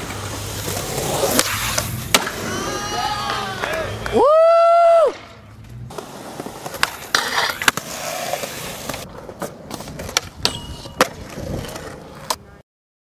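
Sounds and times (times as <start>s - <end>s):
skateboard clacking on ground: 0.0s - 4.0s, 5.1s - 12.5s
skateboard wheels rolling on concrete: 0.0s - 12.6s.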